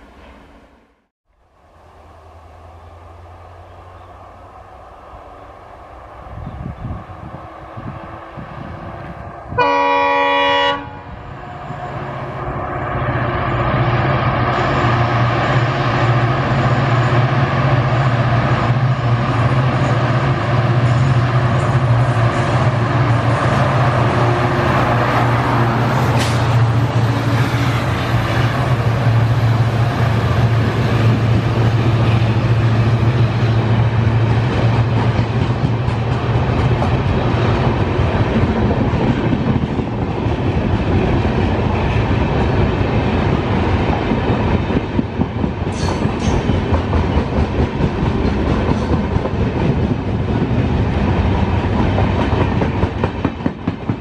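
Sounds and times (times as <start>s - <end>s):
train wheels rumbling: 0.0s - 54.0s.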